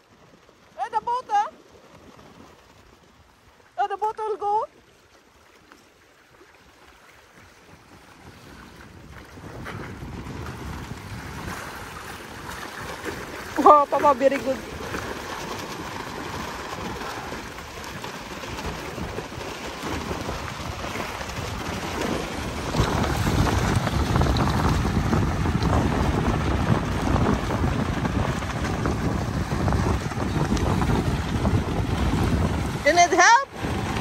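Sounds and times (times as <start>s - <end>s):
small waves lapping: 0.0s - 34.0s
water splashing around legs: 0.0s - 34.0s
wind buffeting microphone: 7.4s - 34.0s.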